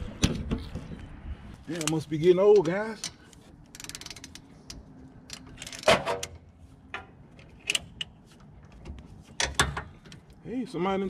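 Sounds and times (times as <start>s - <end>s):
ratchet wrench clicking: 3.7s - 4.4s.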